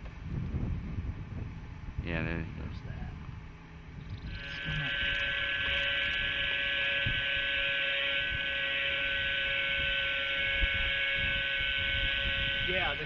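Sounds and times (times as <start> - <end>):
drone propeller whine: 3.5 - 13.0.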